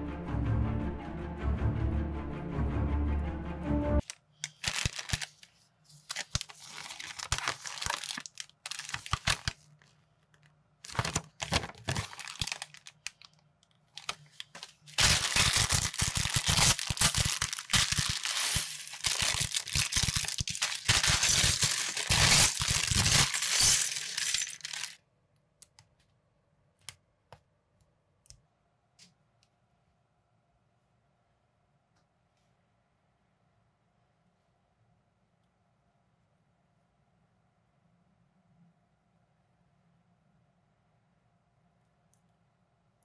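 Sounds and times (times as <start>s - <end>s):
plastic bags and paper crinkling: 4.0s - 25.0s.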